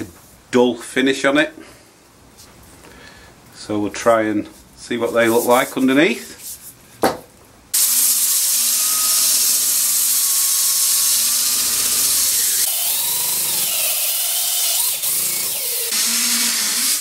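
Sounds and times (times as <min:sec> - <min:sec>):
sandpaper hissing on wood: 0:07.8 - 0:12.7, 0:15.8 - 0:17.0
drill motor whine: 0:07.8 - 0:17.0.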